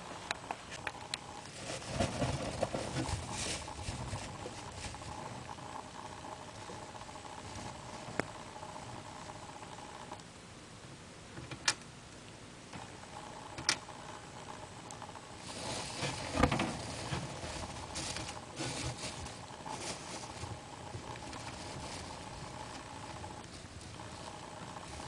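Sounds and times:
hay bedding rustling and crackling: 1.2s - 8.1s, 15.3s - 25.0s.

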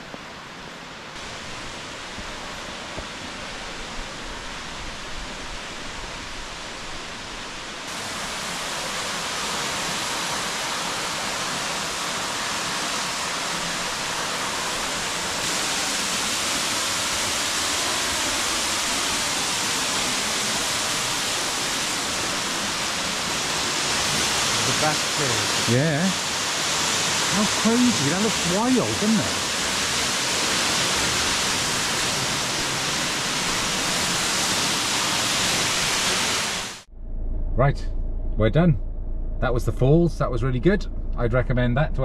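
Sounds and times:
waterfall rushing: 0.0s - 36.9s.

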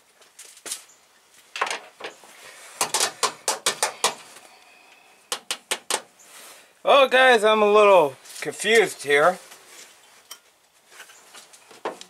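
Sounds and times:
sharp clicks and knocks: 2.8s - 4.3s, 5.3s - 6.1s.

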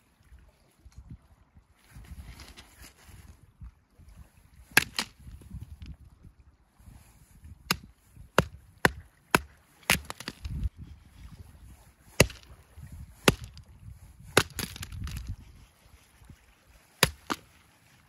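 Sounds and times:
hatchet chopping wood: 4.8s - 5.1s, 7.7s - 10.7s, 12.1s - 12.5s, 13.2s - 13.6s, 14.2s - 15.3s, 17.0s - 17.4s.

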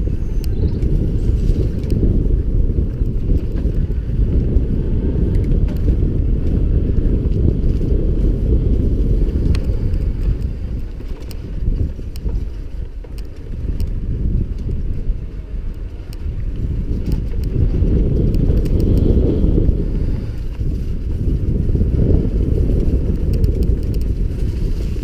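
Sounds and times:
bike clicks and rattles: 0.0s - 25.0s
tyres on dirt trail: 0.0s - 25.0s
wind rumble on microphone: 0.0s - 25.0s.

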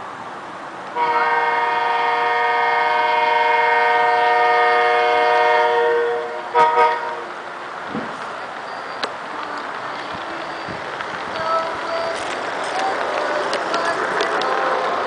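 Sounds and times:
multi-note air horn blast: 1.0s - 7.2s.

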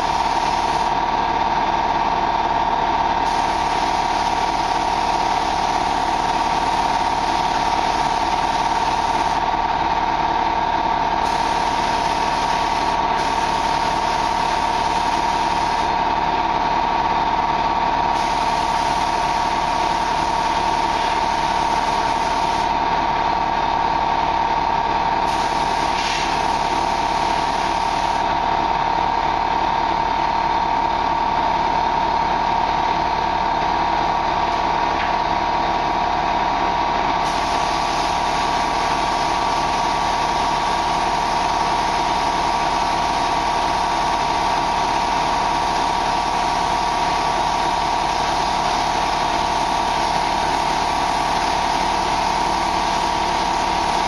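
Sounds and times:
air hissing: 25.3s - 26.5s.

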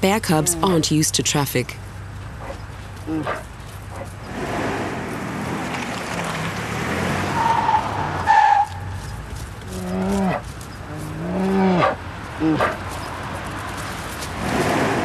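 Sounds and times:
car driving on road: 0.0s - 15.0s
low animal calls: 9.7s - 13.1s.

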